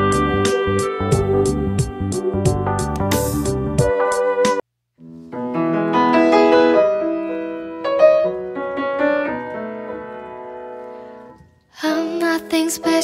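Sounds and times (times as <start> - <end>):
slow solo piano: 5.1 - 11.7.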